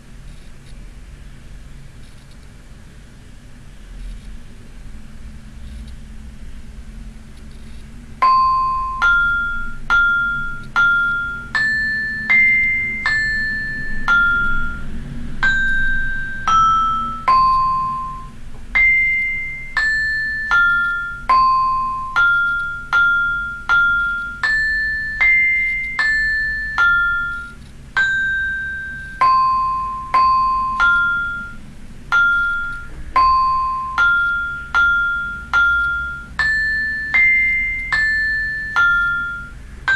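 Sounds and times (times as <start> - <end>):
synthesized vibraphone melody: 8.2 - 39.9.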